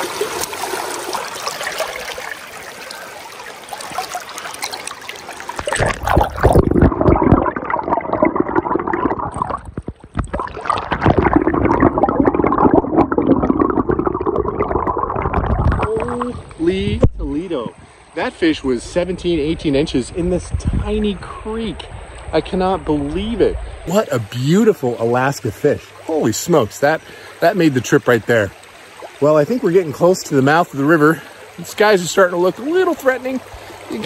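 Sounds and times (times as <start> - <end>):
creek water rushing and splashing: 0.0 - 19.4, 20.0 - 34.0
muffled underwater gurgling: 5.7 - 17.1.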